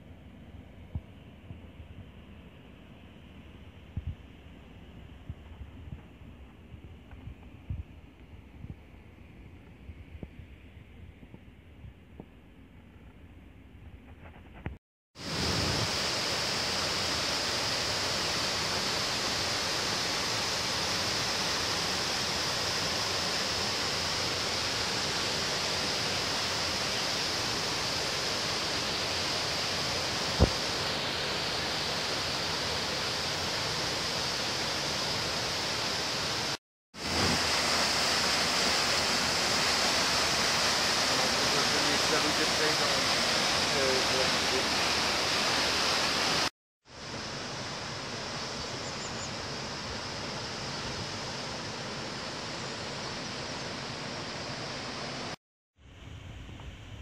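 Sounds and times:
white water rushing: 15.2s - 48.5s.

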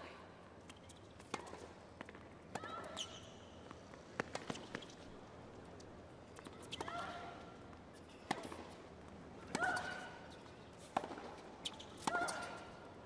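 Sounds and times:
shoe squeaks: 2.7s - 3.6s, 4.4s - 5.2s, 6.3s - 7.2s, 11.6s - 12.6s
tennis ball bouncing: 4.1s - 5.0s, 10.8s - 12.5s.

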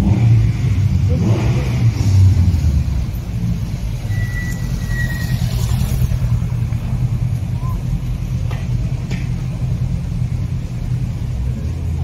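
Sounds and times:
thin high whistle: 4.0s - 5.5s
car exhaust rumble idling: 6.0s - 12.0s.

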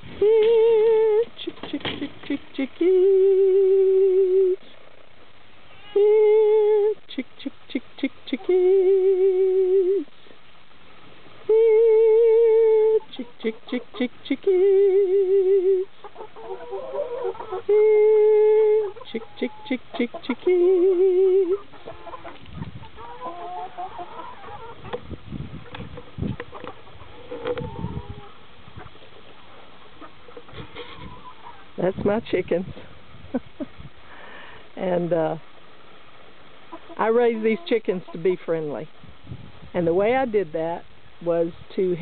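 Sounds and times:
hens clucking: 0.0s - 4.7s, 11.9s - 32.1s, 34.8s - 38.8s
woman singing a chicken call: 0.0s - 4.7s, 5.7s - 10.1s, 11.4s - 22.2s, 37.0s - 38.3s.

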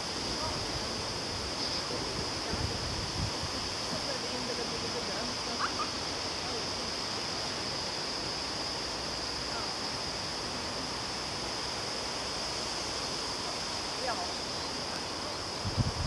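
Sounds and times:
background hiss: 0.0s - 16.0s.

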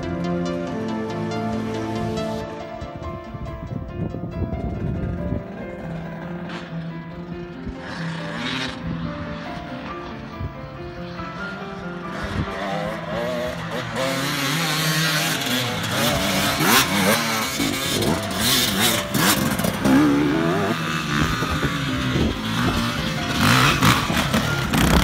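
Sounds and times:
dirt bike engines revving: 7.6s - 10.3s, 11.4s - 25.0s.

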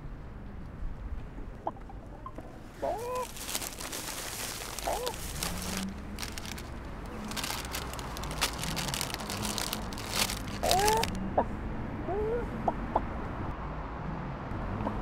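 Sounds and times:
chicken clucking: 1.6s - 3.3s
crisp packet crinkling and tearing: 2.8s - 11.2s.

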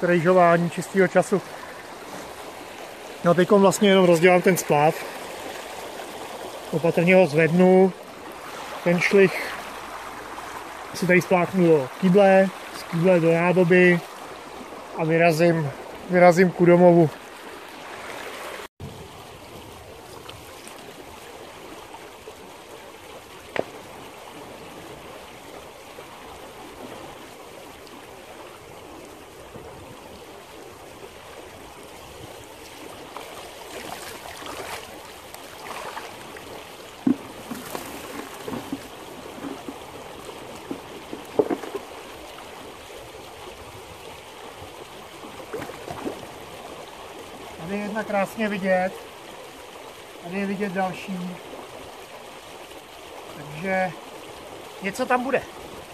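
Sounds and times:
water rushing over rocks: 0.0s - 55.9s
knocks and splashes: 23.3s - 25.2s, 32.6s - 42.7s, 45.2s - 46.6s.

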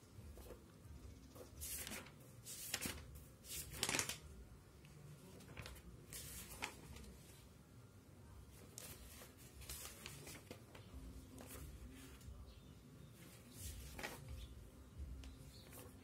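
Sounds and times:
paper rustling: 1.4s - 4.3s, 5.2s - 7.5s, 8.5s - 12.4s, 13.1s - 14.5s, 15.2s - 16.0s.

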